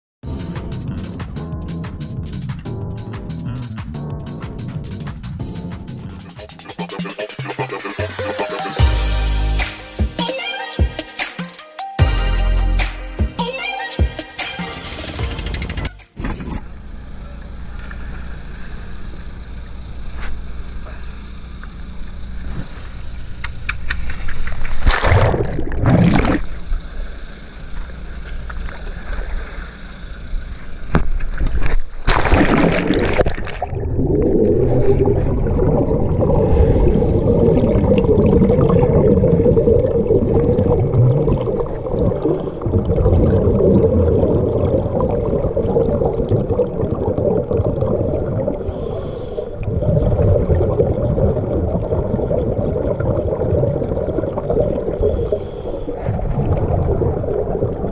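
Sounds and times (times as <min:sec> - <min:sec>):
boat engine running: 0:16.6 - 0:24.8, 0:25.5 - 0:32.2, 0:33.4 - 0:57.9
underwater bubbling: 0:24.7 - 0:57.9
loud splashes: 0:24.8 - 0:26.6, 0:32.0 - 0:42.1
water rushing along hull: 0:27.9 - 0:57.9.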